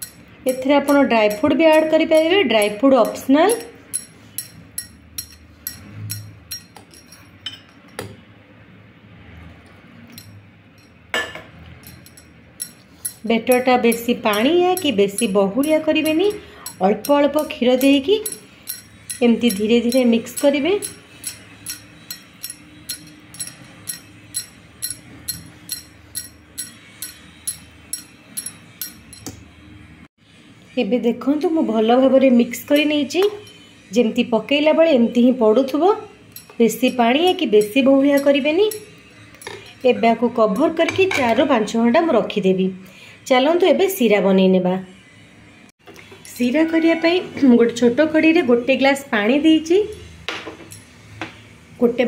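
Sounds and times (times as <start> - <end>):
whisk clicking against bowl: 0.0 - 6.7
metal spoon clinking in bowl: 0.0 - 8.0, 10.1 - 29.4, 32.7 - 33.8, 36.2 - 41.5.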